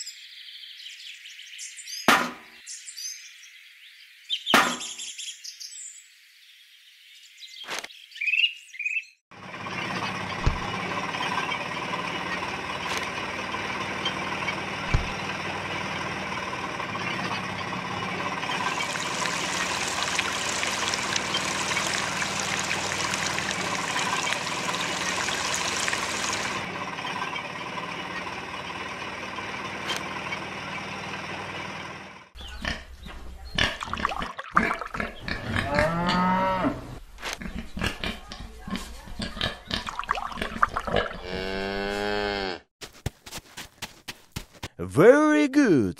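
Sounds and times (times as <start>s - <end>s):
animal calls and grunts: 18.5s - 26.6s, 32.4s - 42.6s
juice splashing into buckets: 18.6s - 26.6s, 33.7s - 35.2s, 39.8s - 41.2s.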